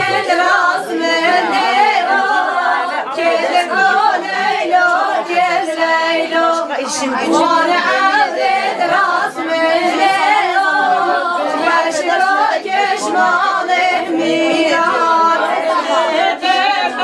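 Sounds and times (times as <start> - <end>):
women singing unaccompanied folk melody: 0.0 - 17.0.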